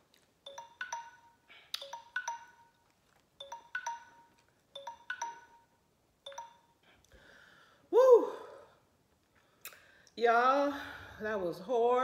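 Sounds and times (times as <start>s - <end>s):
phone timer alarm chiming: 0.4s - 6.8s.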